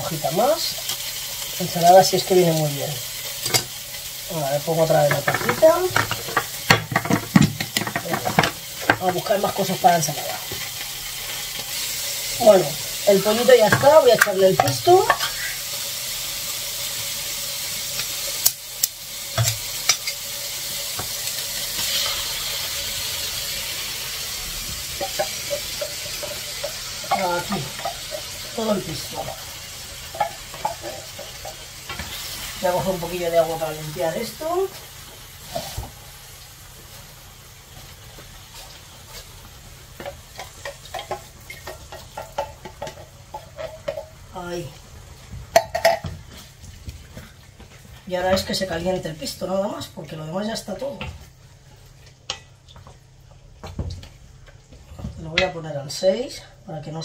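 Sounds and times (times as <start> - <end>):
chicken sizzling in frying pan: 0.0 - 55.4
stirring scrapes and knocks in pan: 24.6 - 32.5, 38.6 - 44.3.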